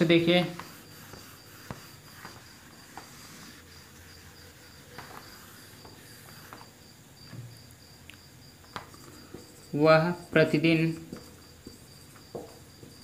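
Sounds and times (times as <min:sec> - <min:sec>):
marker scraping whiteboard: 0:00.0 - 0:06.8
cricket chirping: 0:00.0 - 0:13.0.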